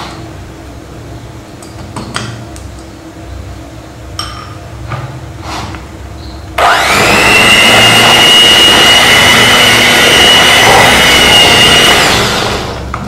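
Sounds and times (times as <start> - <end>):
electric hand mixer whining: 6.6 - 12.9.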